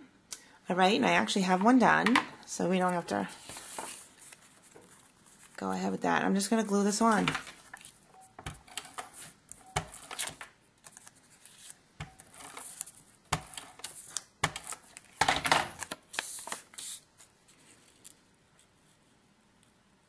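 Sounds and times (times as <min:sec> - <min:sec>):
paper handled: 0:02.8 - 0:05.9, 0:06.6 - 0:18.7.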